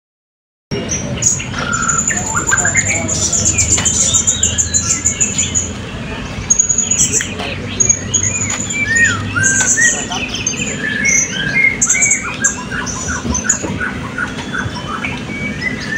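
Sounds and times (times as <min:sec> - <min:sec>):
high steady bird trill: 0:00.8 - 0:15.9
parrots chirping and whistling: 0:00.8 - 0:15.9.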